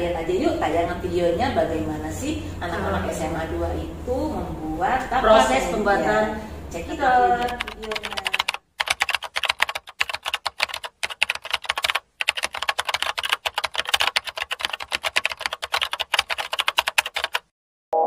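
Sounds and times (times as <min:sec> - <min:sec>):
keyboard typing: 0:07.3 - 0:17.5.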